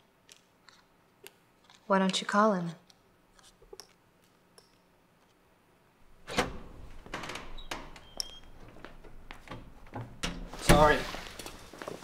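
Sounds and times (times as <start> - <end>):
door knocks and clicks: 6.2 - 8.4, 9.0 - 10.8
high door squeaks: 6.2 - 9.1
door clunk: 6.2 - 11.0.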